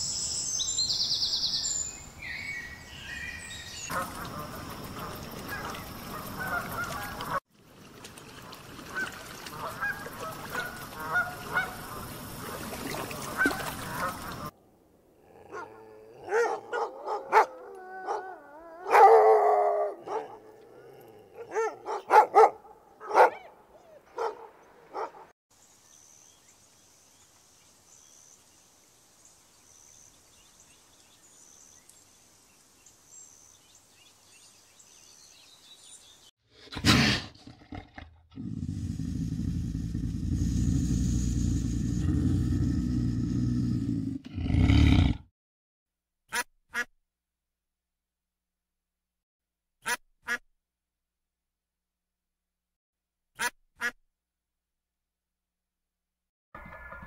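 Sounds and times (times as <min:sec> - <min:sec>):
dog barking and yipping: 0:15.5 - 0:20.5, 0:21.4 - 0:25.3.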